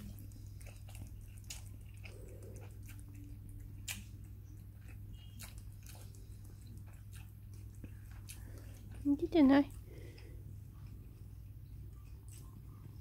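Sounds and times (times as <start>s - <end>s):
cat licking and chewing: 0.0s - 13.0s.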